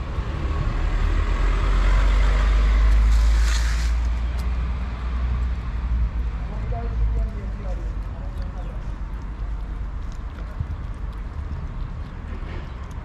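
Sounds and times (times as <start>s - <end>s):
motor vehicle passing: 0.0s - 13.0s.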